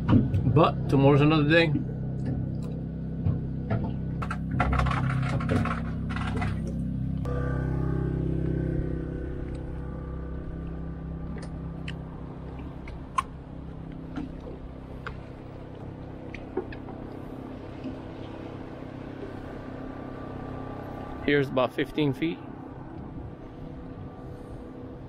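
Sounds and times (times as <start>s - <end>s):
generator humming: 0.0s - 25.0s
rattling and knocks: 1.7s - 7.3s.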